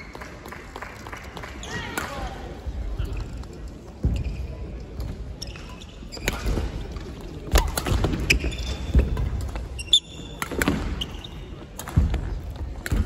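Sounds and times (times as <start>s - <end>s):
shoe squeak: 5.4s - 6.5s, 8.2s - 11.5s.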